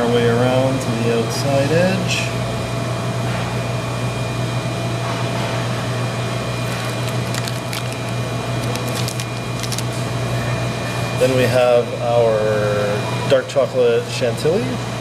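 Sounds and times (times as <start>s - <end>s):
low machine hum: 5.8s - 12.6s
plastic piping bag crinkling: 6.6s - 10.0s.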